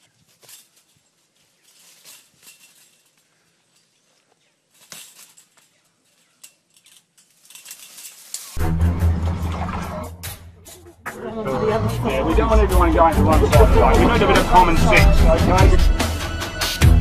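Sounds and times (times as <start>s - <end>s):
chain-link fence rattling: 0.0s - 8.6s
music with heavy bass: 8.6s - 17.0s.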